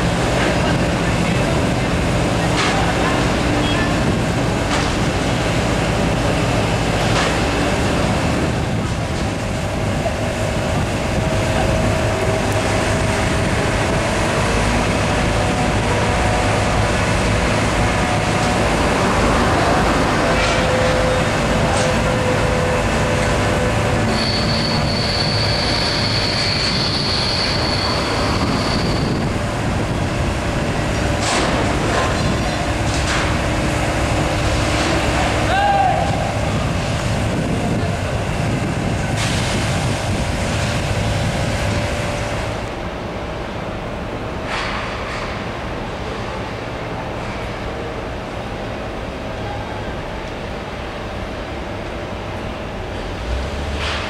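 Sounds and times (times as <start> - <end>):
rumble of heavy vehicles and machinery: 0.0 - 54.0
high-pitched squeal: 20.4 - 29.5.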